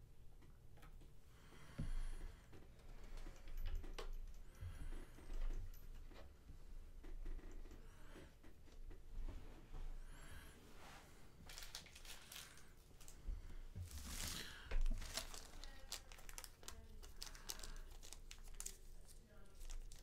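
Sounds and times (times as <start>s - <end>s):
plastic packaging crinkling: 11.4s - 13.2s, 13.8s - 20.0s.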